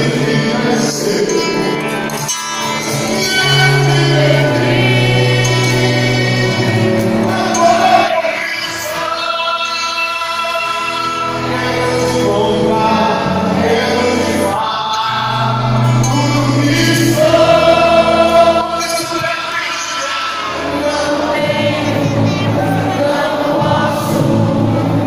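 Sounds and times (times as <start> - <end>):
voices singing held notes: 0.0 - 25.0
low bass notes: 2.8 - 8.1, 10.8 - 19.2, 20.4 - 25.0.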